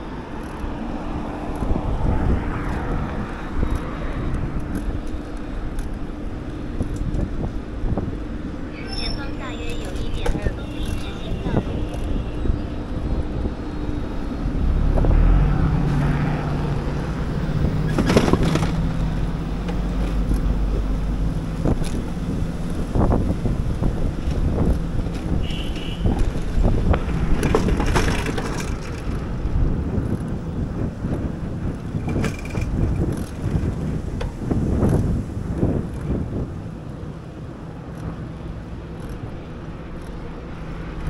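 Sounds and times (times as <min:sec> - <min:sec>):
wind on microphone: 0:00.0 - 0:41.0
bike rattles and knocks: 0:01.4 - 0:08.2, 0:17.6 - 0:41.0
bicycle tyres rumbling on pavement: 0:09.9 - 0:41.0.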